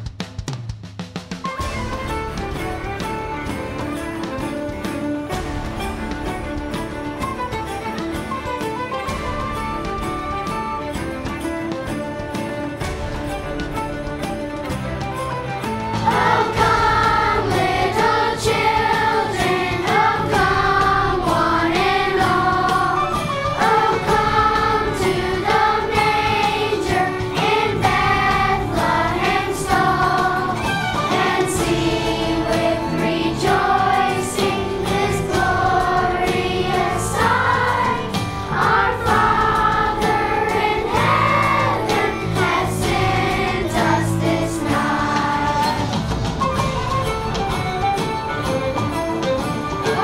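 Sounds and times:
instrumental backing music: 0:00.1 - 0:50.0
children's choir singing: 0:16.0 - 0:46.3.

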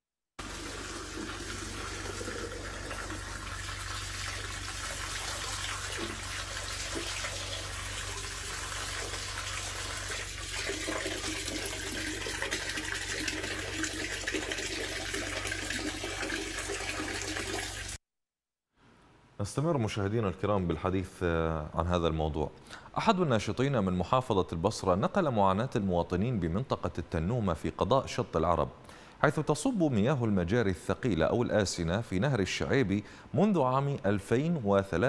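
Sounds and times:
tap water running into bottle: 0:00.4 - 0:18.0
water splashing into plastic basin: 0:00.4 - 0:18.0.

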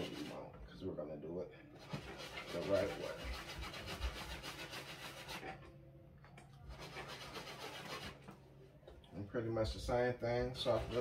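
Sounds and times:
brush scrubbing sneaker: 0:01.8 - 0:05.6, 0:06.7 - 0:08.2, 0:10.6 - 0:11.0.

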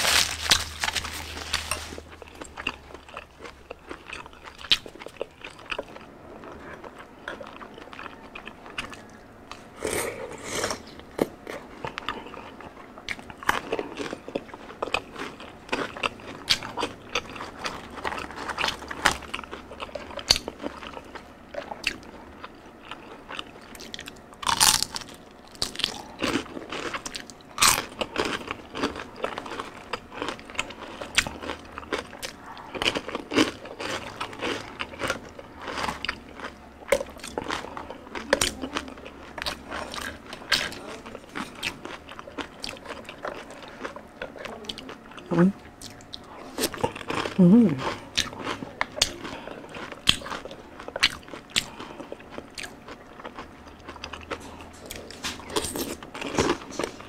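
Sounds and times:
crunching fried food: 0:00.0 - 0:57.0.

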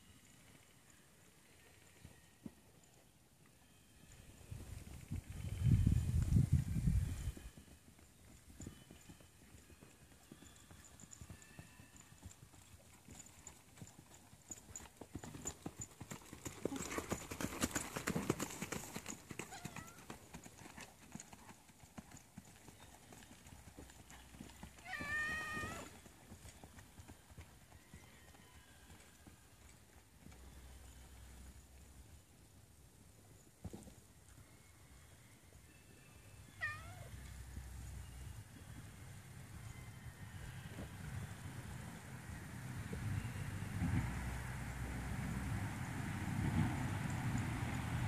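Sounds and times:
horse hoofbeats on turf: 0:07.3 - 0:28.0.

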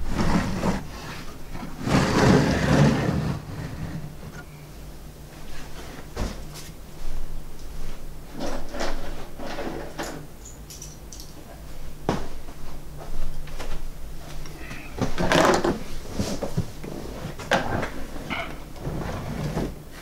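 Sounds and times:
objects bumping and scraping: 0:00.0 - 0:04.6, 0:14.5 - 0:19.8
faint steady hum: 0:00.0 - 0:20.0
objects clattering: 0:17.4 - 0:19.8.

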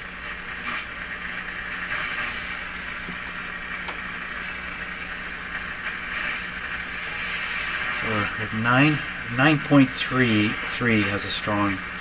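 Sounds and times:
radio static hiss: 0:00.0 - 0:12.0
steady low hum: 0:00.0 - 0:12.0
sharp interference clicks: 0:00.3 - 0:04.2, 0:05.4 - 0:07.0.

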